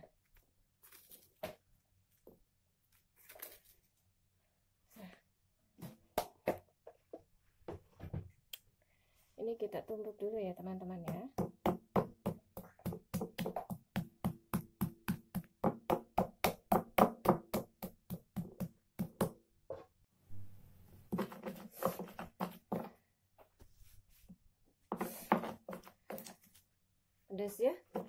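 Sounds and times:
stone pestle pounding in mortar: 0:11.1 - 0:19.4.

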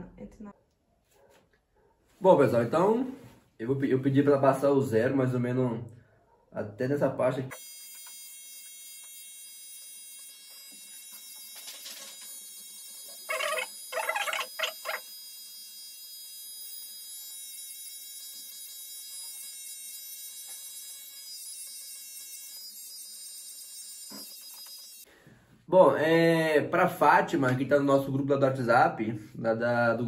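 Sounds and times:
hair clipper buzzing: 0:07.5 - 0:25.1.

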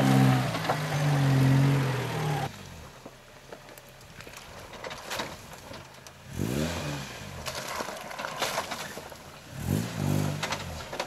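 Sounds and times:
off-road vehicle engine revving: 0:00.0 - 0:03.0, 0:06.2 - 0:07.8, 0:09.4 - 0:11.0.

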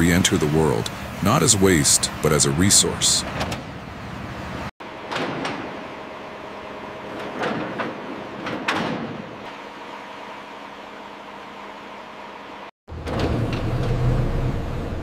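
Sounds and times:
machinery hum: 0:00.0 - 0:15.0
cargo sliding and knocking: 0:07.2 - 0:09.4.

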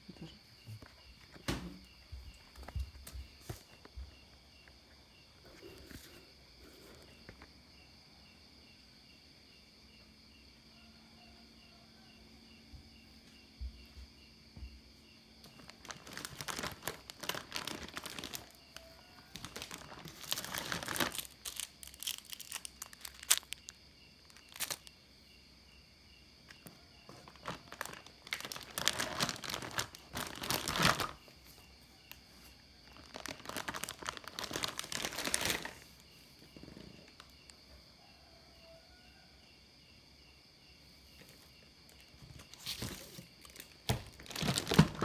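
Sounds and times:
plastic bag crinkling: 0:15.5 - 0:24.9, 0:27.1 - 0:31.2, 0:32.8 - 0:35.9, 0:42.4 - 0:45.0.

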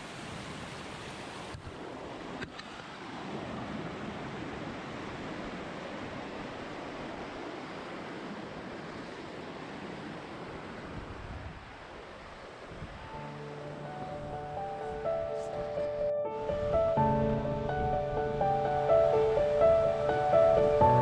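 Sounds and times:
stream rushing over rocks: 0:00.0 - 0:15.8.

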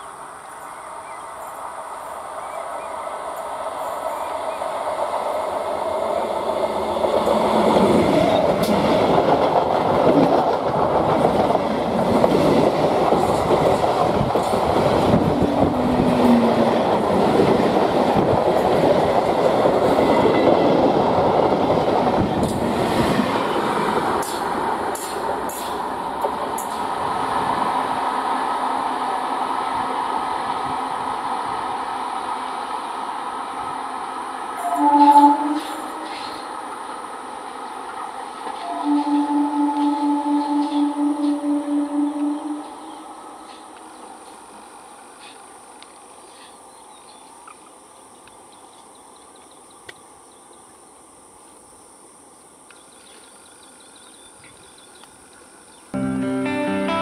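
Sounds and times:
train wheels rumbling on rails: 0:03.3 - 0:33.0.

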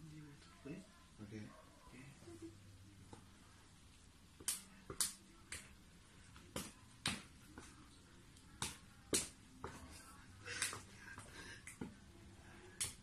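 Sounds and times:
hands slapping hands: 0:04.4 - 0:07.8, 0:08.4 - 0:09.8, 0:10.5 - 0:12.0, 0:12.7 - 0:13.0.

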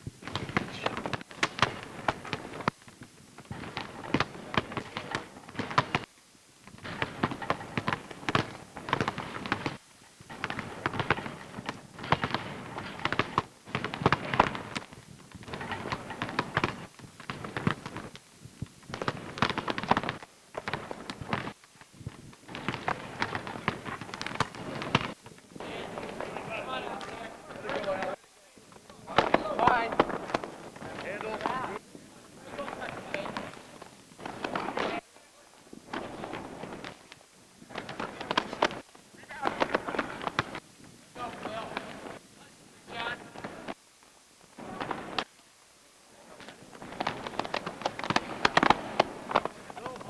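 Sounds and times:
basketballs bouncing on wooden floor: 0:03.5 - 0:06.0, 0:06.8 - 0:18.1.

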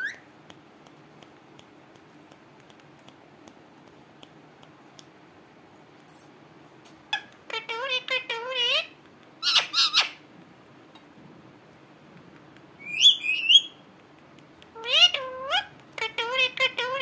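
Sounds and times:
parakeet calling: 0:07.1 - 0:10.2, 0:12.8 - 0:13.8, 0:14.8 - 0:17.0.

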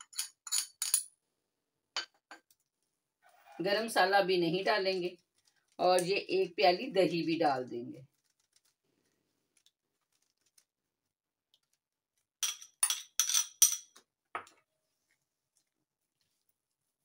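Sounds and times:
spoon clinking against glass bowl: 0:12.4 - 0:14.0.

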